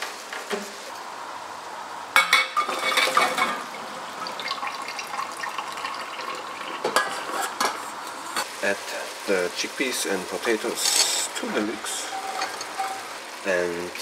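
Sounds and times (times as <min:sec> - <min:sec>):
water pouring into a sink: 0:02.7 - 0:07.6.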